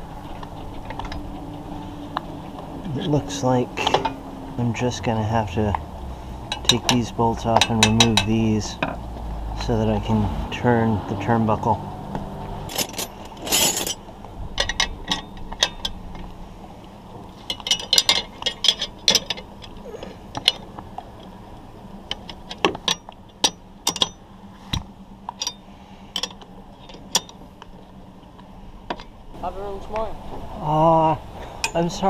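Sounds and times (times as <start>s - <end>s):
wrenches clicking on bolts: 6.5s - 8.4s, 17.5s - 20.6s, 22.1s - 24.2s, 26.2s - 27.4s.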